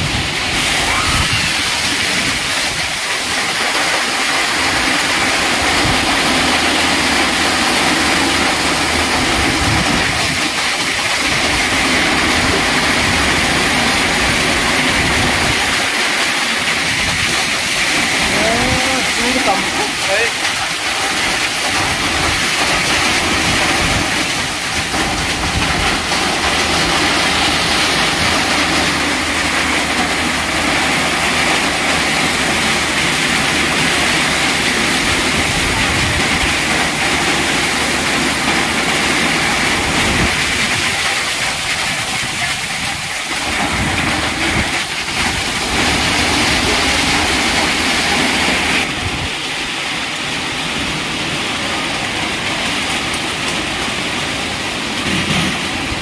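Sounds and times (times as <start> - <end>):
rain and hail pelting: 0.0 - 56.0
water pouring and splashing: 0.0 - 56.0.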